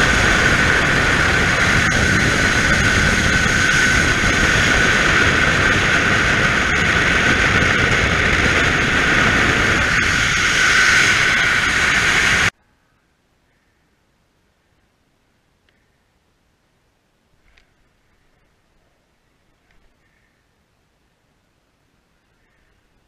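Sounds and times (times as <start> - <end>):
freefall wind rushing over microphone: 0.0 - 12.6.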